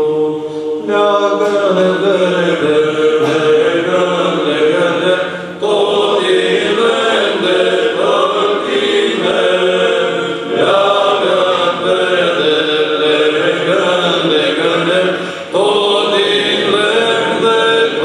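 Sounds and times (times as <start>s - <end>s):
male choir singing in harmony: 0.0s - 18.0s
singers breathing: 0.4s - 0.8s, 5.2s - 5.6s, 15.1s - 15.6s.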